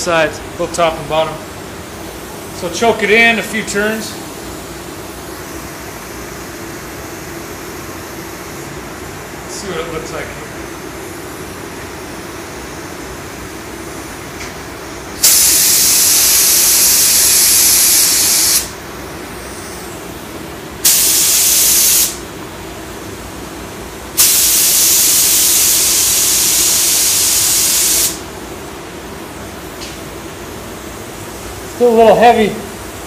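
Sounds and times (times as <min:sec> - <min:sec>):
spray gun hissing: 0:15.2 - 0:18.8, 0:20.8 - 0:22.2, 0:24.2 - 0:28.2.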